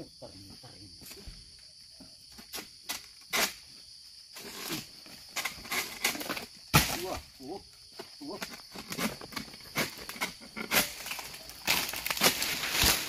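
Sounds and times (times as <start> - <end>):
insect drone: 0.0 - 13.0
sickle cutting stalks: 9.8 - 13.0.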